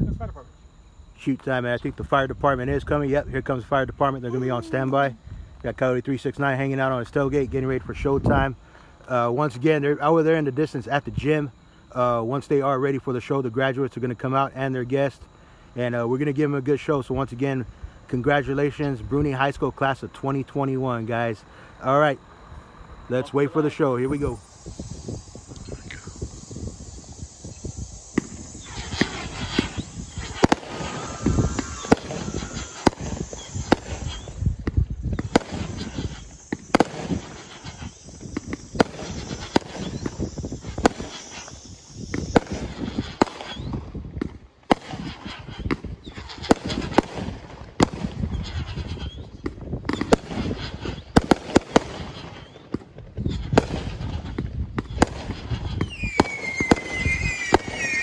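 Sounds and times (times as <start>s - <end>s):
firework whistle: 0.0s - 12.2s, 14.6s - 58.0s
firework bursts with crackle: 0.1s - 58.0s
firework launch thumps: 24.1s - 58.0s.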